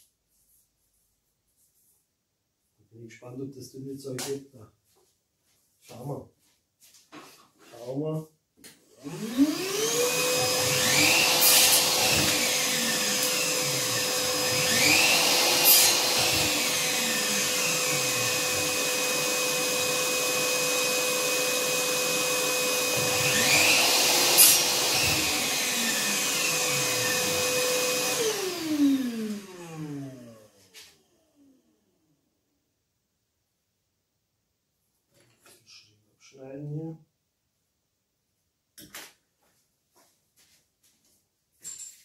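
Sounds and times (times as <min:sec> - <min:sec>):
shop vacuum running: 0:09.0 - 0:31.6.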